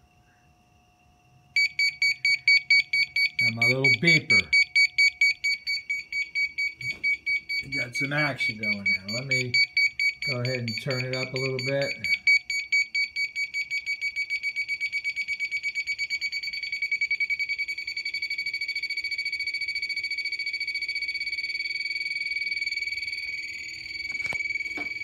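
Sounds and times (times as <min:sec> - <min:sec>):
high-pitched pulsing beeps: 0:01.6 - 0:25.0.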